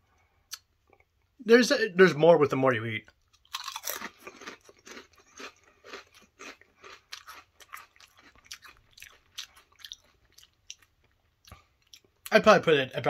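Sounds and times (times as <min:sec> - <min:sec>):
potato chips being chewed: 0:03.1 - 0:12.3.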